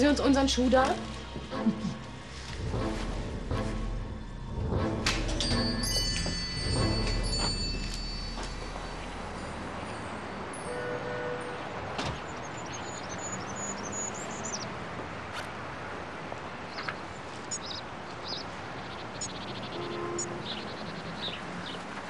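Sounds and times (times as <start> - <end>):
steady background hush: 0.0 - 11.0
small birds chirping: 12.1 - 14.8, 16.6 - 22.0.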